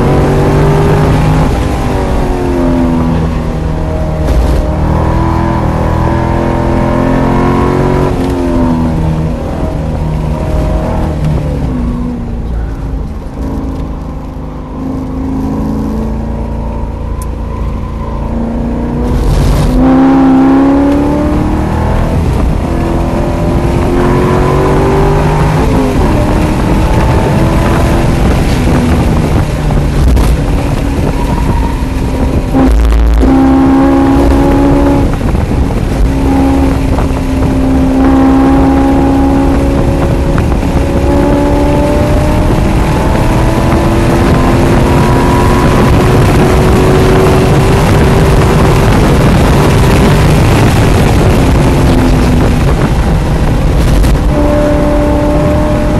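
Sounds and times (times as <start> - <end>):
car engine accelerating: 0.0 - 55.9.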